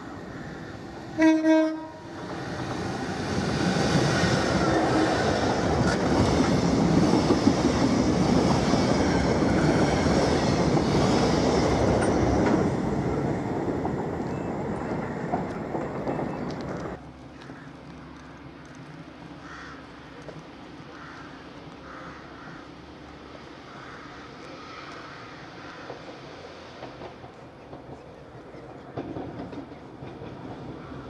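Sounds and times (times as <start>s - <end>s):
diesel locomotive passing: 0.0s - 31.0s
wagons clattering over rails: 26.8s - 31.0s.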